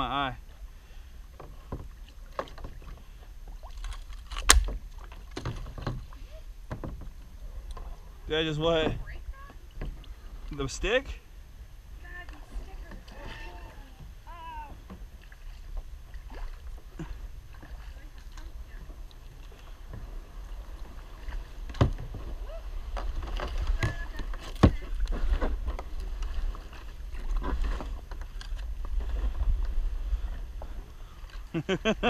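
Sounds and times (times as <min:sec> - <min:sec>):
kayak scraping and clicking: 0:00.4 - 0:11.3, 0:11.9 - 0:32.0
water sloshing: 0:00.4 - 0:32.0
sharp knocks on kayak: 0:21.7 - 0:22.3.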